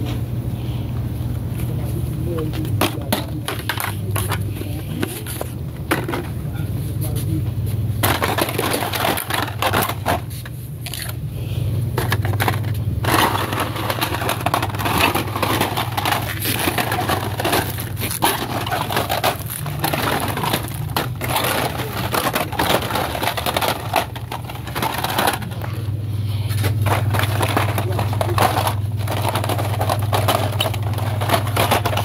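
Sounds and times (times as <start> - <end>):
steady low hum: 0.0 - 32.0
cards scraping and clicking: 8.0 - 11.2, 12.0 - 25.8, 26.5 - 32.0
plastic blister packs crinkling: 8.0 - 11.2, 12.0 - 25.9, 26.5 - 32.0.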